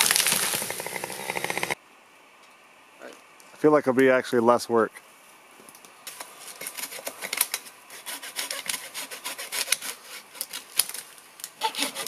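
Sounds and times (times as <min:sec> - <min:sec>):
hand saw cutting wood: 0:06.6 - 0:07.3, 0:07.9 - 0:10.7, 0:11.6 - 0:12.0.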